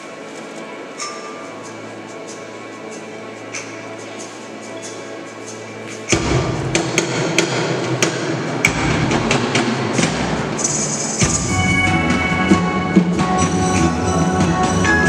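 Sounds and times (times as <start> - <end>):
steady musical tones: 0.0 - 15.0
choir concert din: 4.6 - 15.0.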